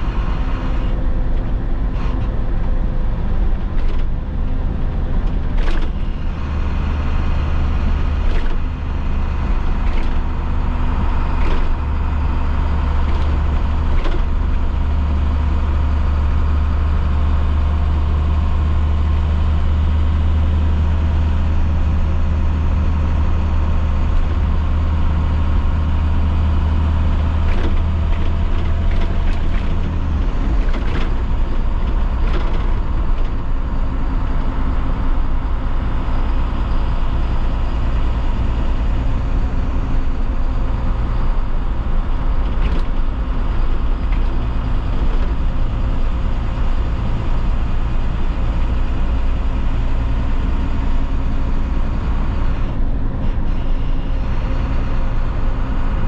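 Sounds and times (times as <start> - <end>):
diesel bus engine running: 0.0 - 56.0
sharp clicks or rattles: 3.7 - 4.2, 9.8 - 10.3, 11.3 - 11.8, 27.5 - 33.4.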